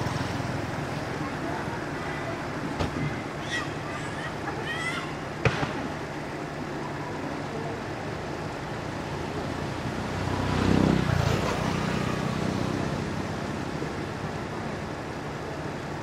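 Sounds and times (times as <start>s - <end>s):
motor vehicle passing: 0.0s - 2.2s, 8.9s - 14.0s
steady background hum: 0.0s - 9.7s.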